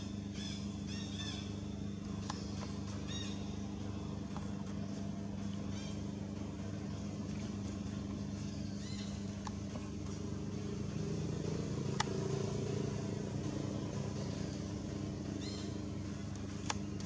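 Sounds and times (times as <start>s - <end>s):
vehicle engine droning: 0.0s - 17.0s.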